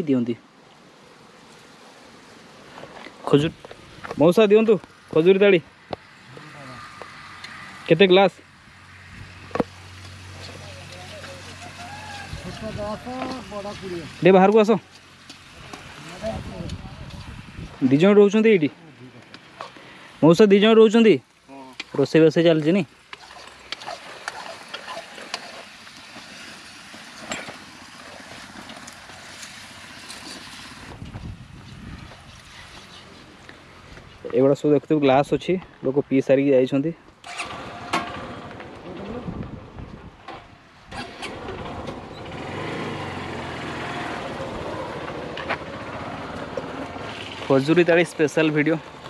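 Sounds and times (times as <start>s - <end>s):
outdoor background noise: 0.0s - 49.0s
engine running: 37.2s - 49.0s.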